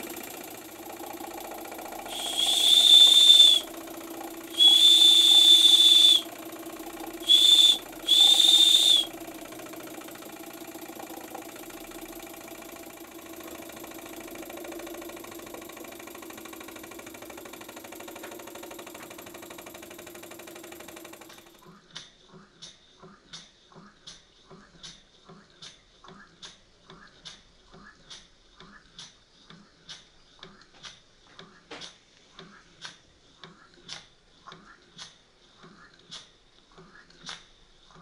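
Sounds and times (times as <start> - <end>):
toy steam engine running: 0.0 - 21.8
steam whistle blasts: 2.0 - 3.8, 4.5 - 6.4, 7.2 - 9.1.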